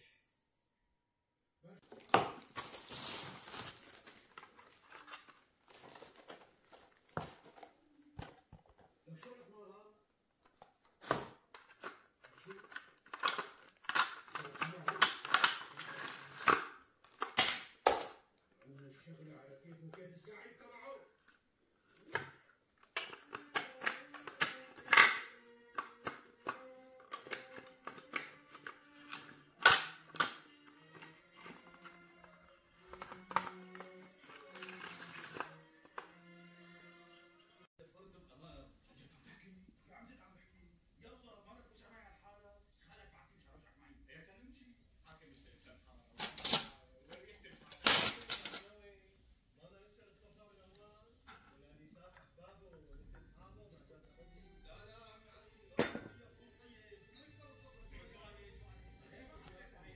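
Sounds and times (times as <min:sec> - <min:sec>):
household items clicking and knocking: 0:01.8 - 0:09.0, 0:10.4 - 0:18.4, 0:21.2 - 0:36.2, 0:47.6 - 0:48.7
soft background music: 0:01.9 - 0:59.9.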